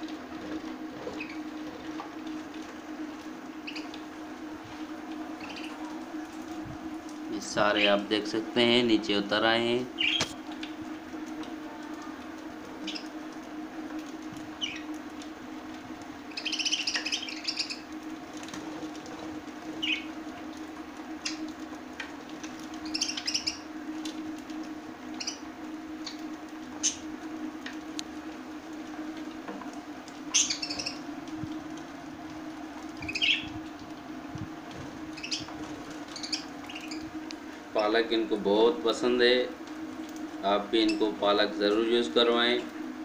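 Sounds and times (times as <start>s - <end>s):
steady low hum: 0.0s - 43.0s
budgerigars chirping: 16.3s - 17.8s, 22.8s - 23.6s, 30.4s - 31.0s, 33.0s - 33.5s, 35.2s - 35.5s, 36.1s - 37.0s.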